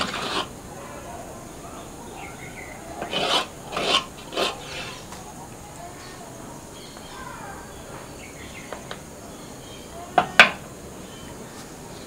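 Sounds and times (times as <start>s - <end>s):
wooden spoon scraping clay bowl: 0.0s - 0.5s, 3.0s - 5.2s
faint bird chirps: 0.8s - 3.1s, 4.5s - 10.4s.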